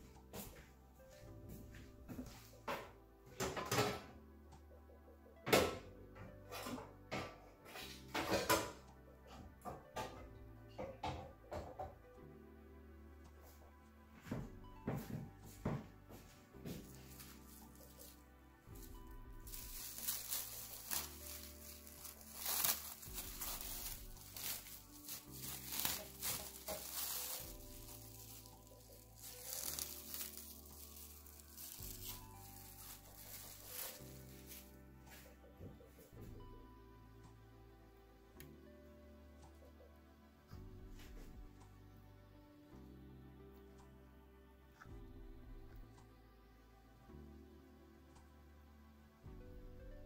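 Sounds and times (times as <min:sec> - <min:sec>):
background music with held notes: 0:00.0 - 0:50.0
crinkling and rustling: 0:14.3 - 0:35.8.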